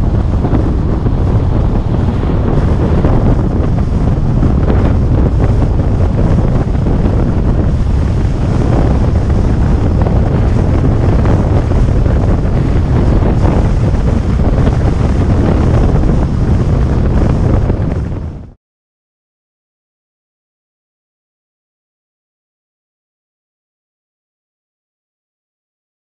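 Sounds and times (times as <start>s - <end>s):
road rumble: 0.0s - 18.1s
wind buffeting microphone: 0.0s - 18.6s.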